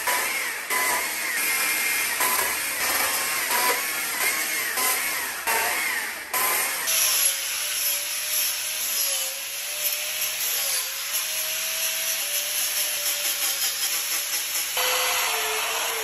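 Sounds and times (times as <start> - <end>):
angle grinder motor whine: 14.8 - 16.0.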